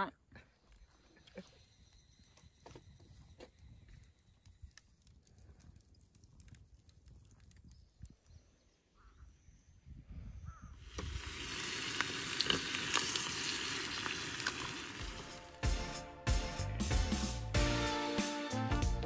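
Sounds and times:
bacon and egg sizzling in skillet: 10.8 - 15.6.

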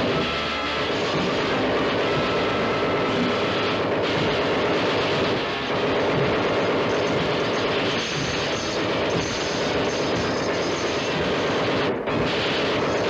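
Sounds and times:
robot mechanical clanking: 0.0 - 13.0
submachine gun fire: 0.0 - 13.0.

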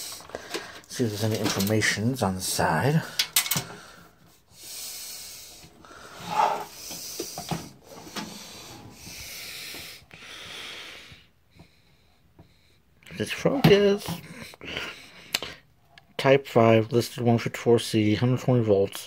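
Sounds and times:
fan housing rubbing and scraping: 6.1 - 7.4.

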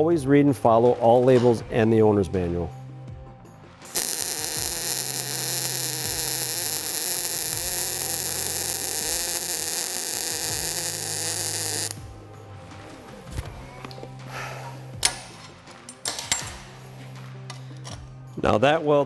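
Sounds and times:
welding arc crackling hiss: 3.8 - 12.0.

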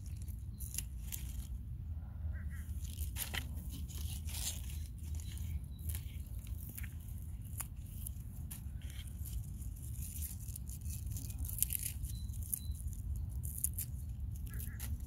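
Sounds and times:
stems snapping and tearing: 0.0 - 1.5, 2.8 - 15.0
spinach leaves rustling: 0.0 - 1.6, 2.7 - 15.0
steady low rumble: 0.0 - 15.0.

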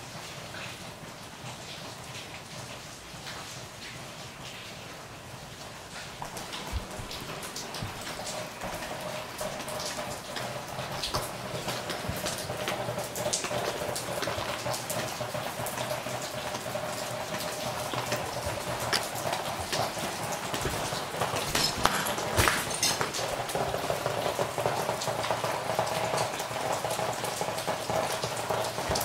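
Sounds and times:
rain falling: 0.0 - 29.0
sharp drips on wet surfaces: 0.0 - 29.0.

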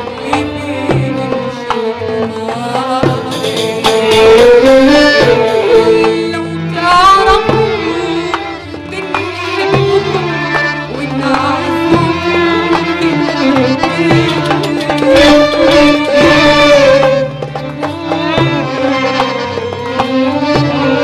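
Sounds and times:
hand drum: 0.0 - 21.0
orchestra playing: 0.0 - 21.0
woman singing: 0.0 - 21.0.

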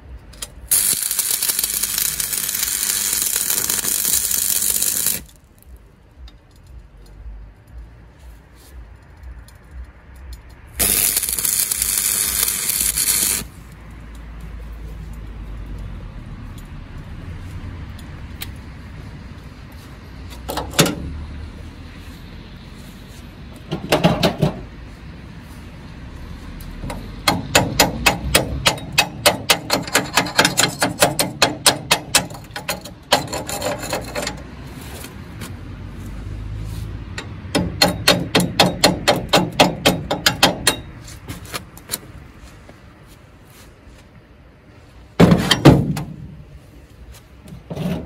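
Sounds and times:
chipping hammer tapping steel: 0.7 - 5.3.

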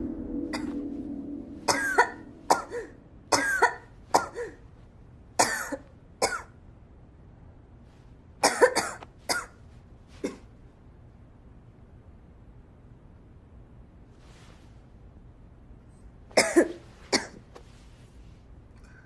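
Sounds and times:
person coughing: 1.7 - 4.6, 5.4 - 6.5, 8.4 - 9.6, 16.4 - 17.4.

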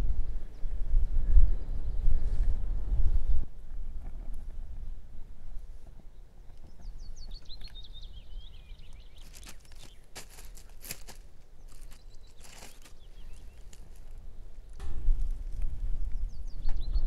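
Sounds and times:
low rumble of wind: 0.0 - 17.0
songbird trilling: 6.6 - 10.2, 11.6 - 14.8
crunching of crisp food: 8.9 - 15.7.

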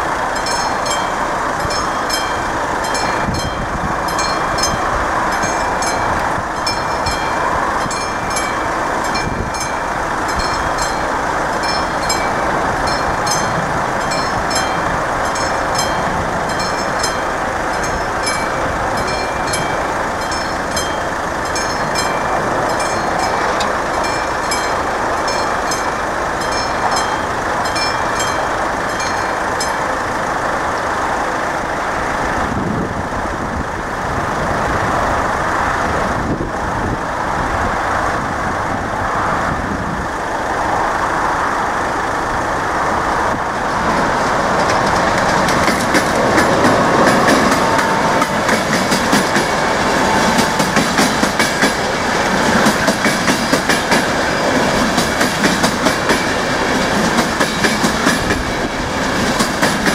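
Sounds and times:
steady rushing noise: 0.0 - 59.9
level crossing bell ringing: 0.3 - 30.0.

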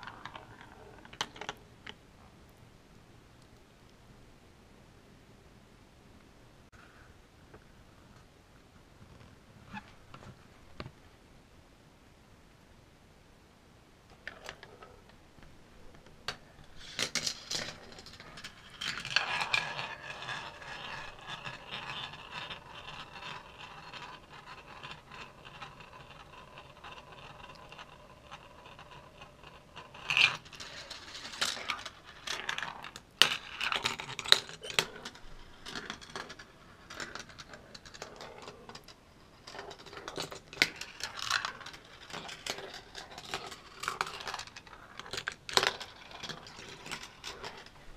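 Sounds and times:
marbles rolling on track: 0.0 - 2.0, 16.3 - 47.9
marbles clicking and clacking: 16.3 - 47.9.

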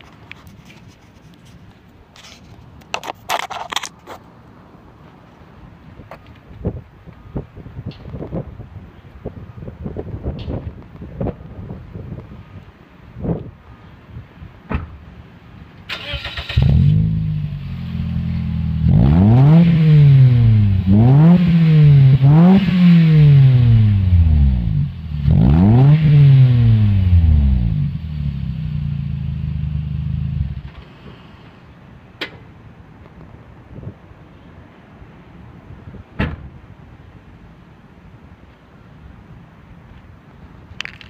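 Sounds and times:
car engine starting and revving: 15.9 - 30.9.

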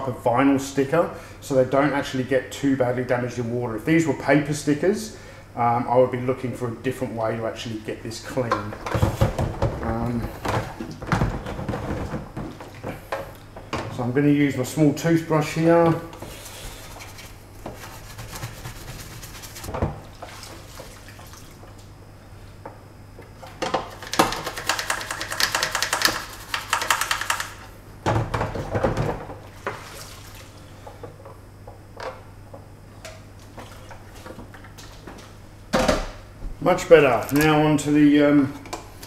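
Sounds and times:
toothbrush scrubbing plastic: 16.3 - 19.7, 24.0 - 27.6
water sloshing and splashing: 19.7 - 21.9, 29.4 - 31.0, 33.4 - 35.0.

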